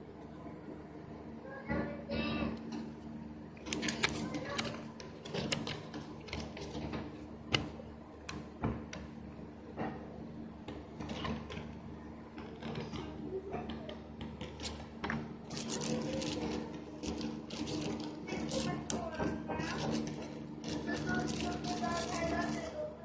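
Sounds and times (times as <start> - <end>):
paper rustling and crinkling: 3.7 - 7.0, 15.5 - 22.8.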